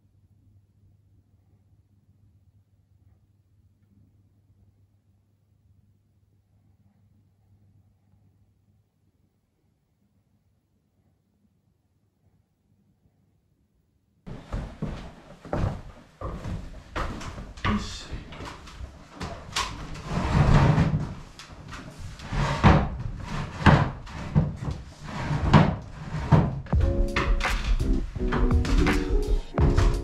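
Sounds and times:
wooden knocks and thumps: 25.4 - 30.0
background music: 26.8 - 30.0.

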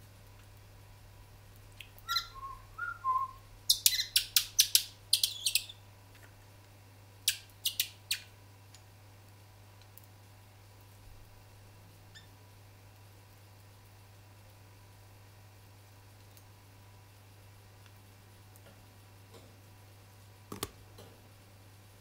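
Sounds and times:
finches calling: 3.7 - 5.7.

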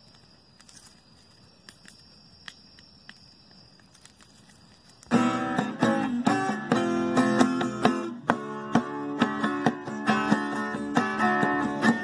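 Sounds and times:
wood fire crackling: 0.0 - 7.9
acoustic guitar music: 5.1 - 12.0.

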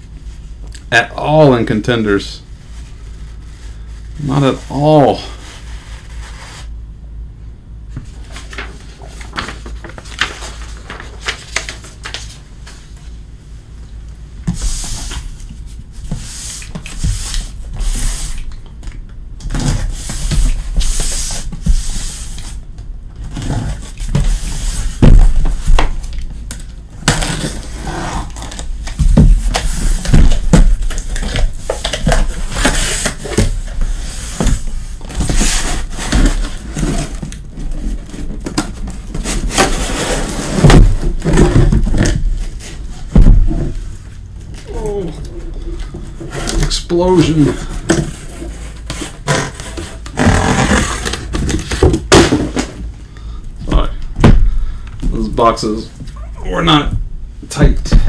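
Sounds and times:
cardboard rustling and scraping: 2.7 - 6.8, 7.9 - 13.0, 14.4 - 18.5, 23.2 - 26.2, 27.0 - 52.9
boxes knocking and thumping: 23.2 - 26.0, 28.3 - 33.8, 34.4 - 43.8, 46.2 - 52.9, 54.2 - 54.6.

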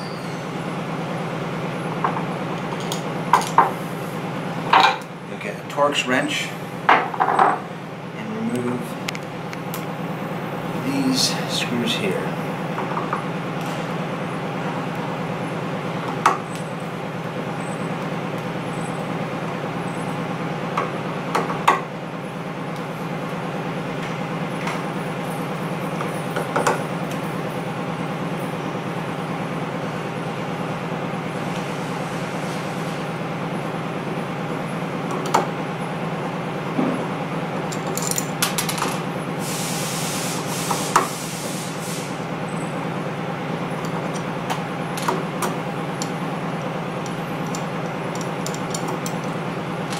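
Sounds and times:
steady low hum: 0.0 - 49.9
screwdriver clicking on metal: 47.0 - 49.4.

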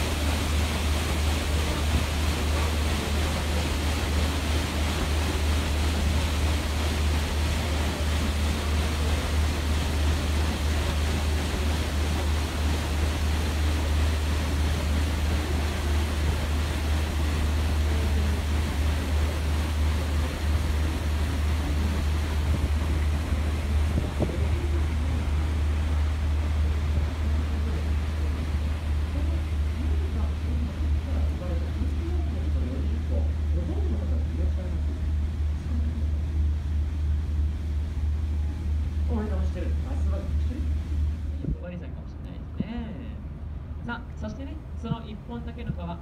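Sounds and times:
wind on microphone: 0.0 - 31.5, 39.8 - 42.9
boat engine drone: 0.0 - 46.0
water rushing along hull: 0.0 - 46.0.

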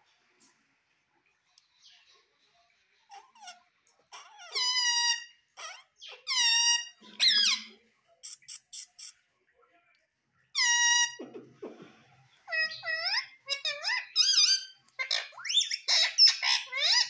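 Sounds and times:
parrot calling: 3.1 - 9.2, 10.5 - 11.2, 12.4 - 17.0.

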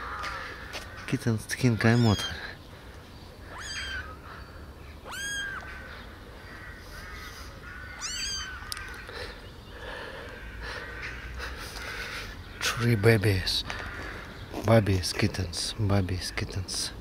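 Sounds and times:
kittens mewing: 1.7 - 2.6, 3.4 - 4.3, 5.0 - 5.9, 7.1 - 9.1.

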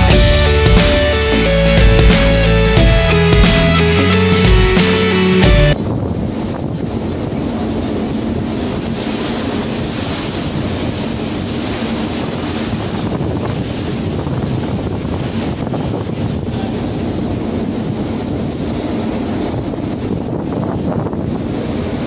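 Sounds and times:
rough sea rushing: 0.0 - 22.0
wind on microphone: 5.7 - 22.0.

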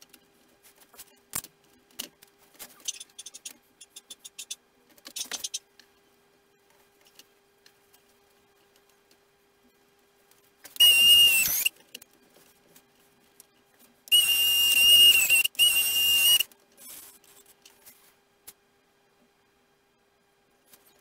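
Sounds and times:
electric retract motor whining: 10.8 - 11.7, 14.1 - 16.4.

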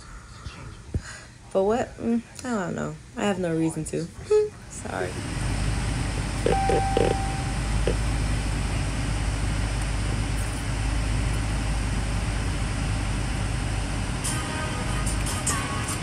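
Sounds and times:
car cabin rumble and hiss: 5.0 - 13.7.

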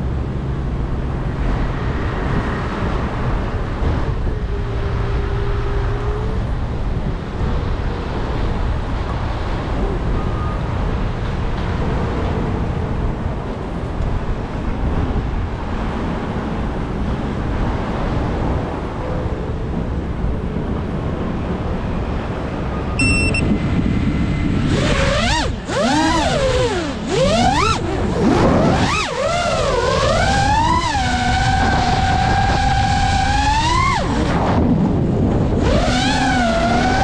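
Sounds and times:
road traffic: 0.0 - 37.0
wind: 0.0 - 37.0
electronic beep: 23.0 - 23.5
drone motors whining: 24.6 - 34.4.

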